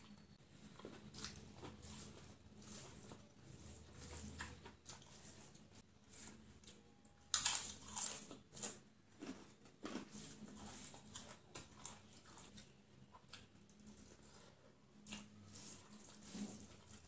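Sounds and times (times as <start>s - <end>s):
crunching of crisp food: 0.6s - 17.0s
chewing: 0.7s - 17.0s.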